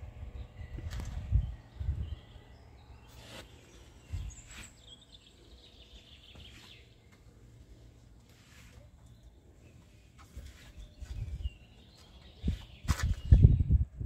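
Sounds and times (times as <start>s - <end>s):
wind buffeting microphone: 0.0s - 2.4s, 10.8s - 11.7s, 12.3s - 14.0s.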